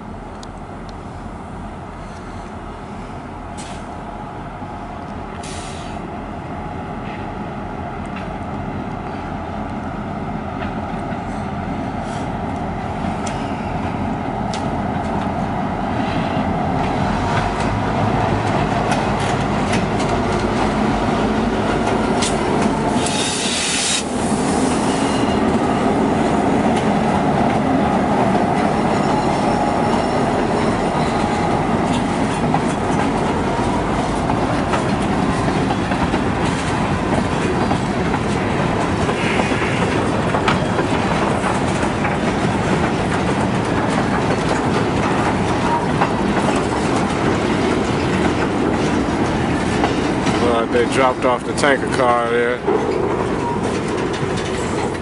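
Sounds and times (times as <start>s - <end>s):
diesel locomotive running: 0.0s - 55.0s
brief hiss: 5.4s - 6.0s, 23.0s - 24.1s
freight cars rolling: 13.0s - 55.0s.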